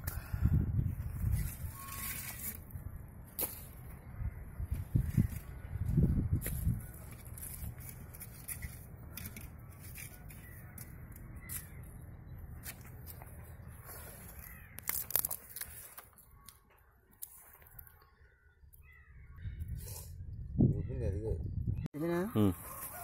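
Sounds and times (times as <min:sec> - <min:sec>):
crows cawing: 0:09.1 - 0:11.8, 0:14.2 - 0:19.6, 0:22.1 - 0:23.0.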